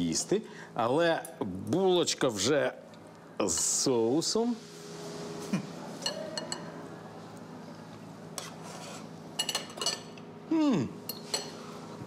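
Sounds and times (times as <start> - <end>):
cutlery clinking on ceramic bowl: 9.4 - 10.2, 11.1 - 11.6
man humming mmm: 10.5 - 11.0.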